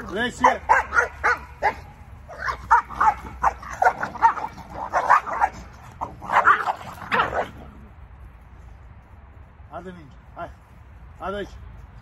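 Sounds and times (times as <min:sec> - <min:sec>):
puppies barking: 0:00.0 - 0:07.6.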